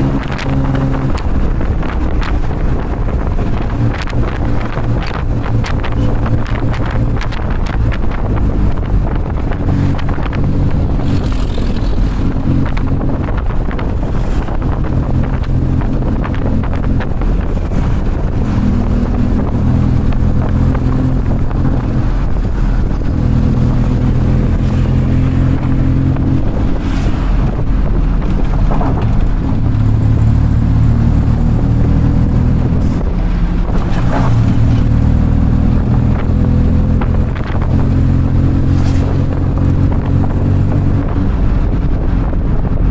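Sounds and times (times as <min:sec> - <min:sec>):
tuk-tuk engine running: 0:00.0 - 0:42.9
wind noise on microphone: 0:00.0 - 0:42.9.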